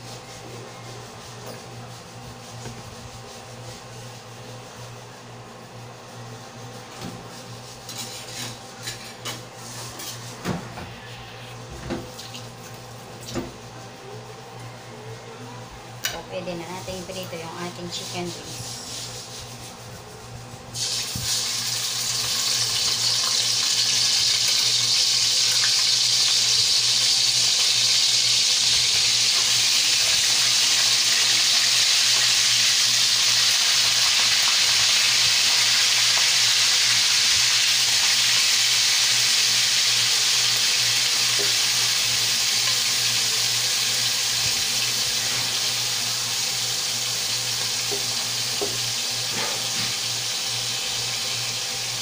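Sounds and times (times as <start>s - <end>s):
chicken deep-frying in oil: 20.7s - 52.0s.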